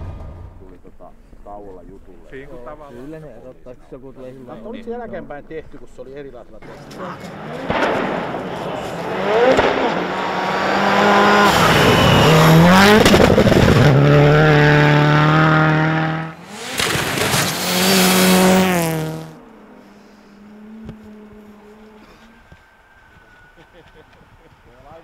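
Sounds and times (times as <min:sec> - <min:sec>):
rally car engine revving: 0:06.6 - 0:22.7.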